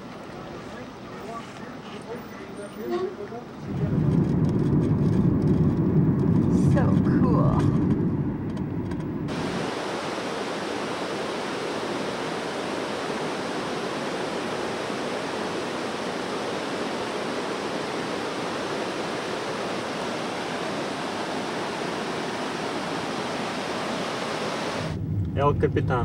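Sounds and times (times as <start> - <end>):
waterfall rushing: 9.3 - 25.0.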